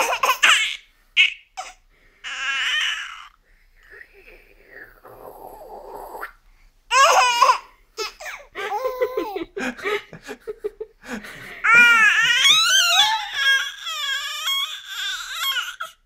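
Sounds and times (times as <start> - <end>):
baby babbling and laughing: 0.0 - 3.3, 6.9 - 9.4, 11.6 - 16.0
baby squealing: 11.7 - 16.0.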